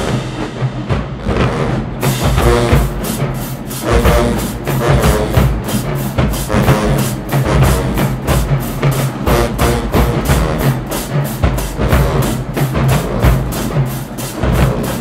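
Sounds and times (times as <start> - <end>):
bass drum: 0.0 - 15.0
fast steady drum beat: 0.0 - 15.0
marching band music: 0.0 - 15.0.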